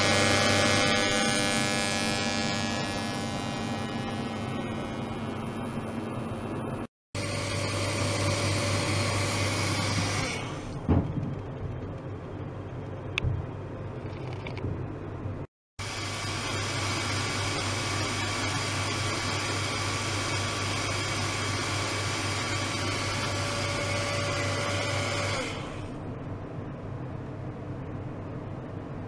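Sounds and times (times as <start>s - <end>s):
machine buzz with whining tones: 0.0s - 10.9s, 15.8s - 26.0s.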